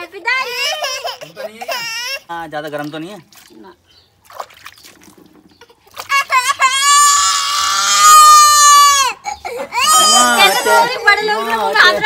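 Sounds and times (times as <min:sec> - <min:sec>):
baby crying: 0:06.1 - 0:11.2.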